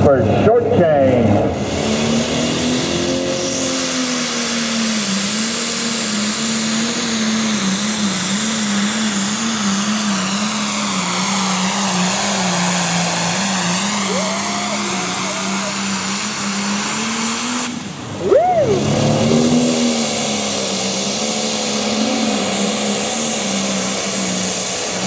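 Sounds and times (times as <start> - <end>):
tractor engine droning under load: 0.0 - 25.0.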